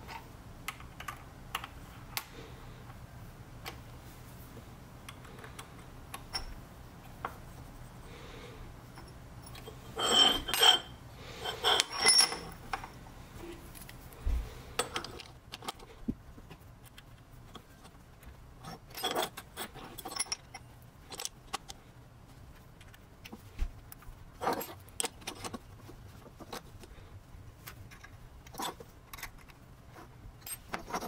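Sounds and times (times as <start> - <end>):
metal parts clinking and scraping: 8.9 - 13.0, 14.8 - 15.9, 18.6 - 21.8, 24.4 - 25.7, 27.6 - 31.0.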